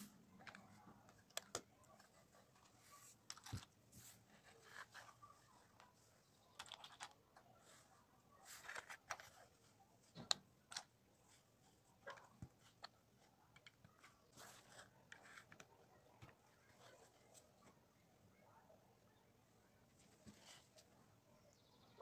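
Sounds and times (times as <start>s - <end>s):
plastic bricks clicking together: 6.5s - 7.2s.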